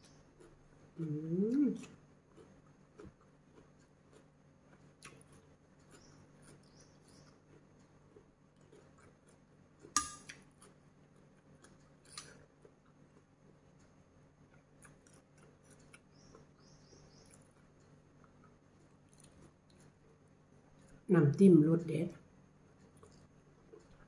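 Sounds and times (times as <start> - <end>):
metal spoon clinking on glass bowl: 10.0 - 10.3.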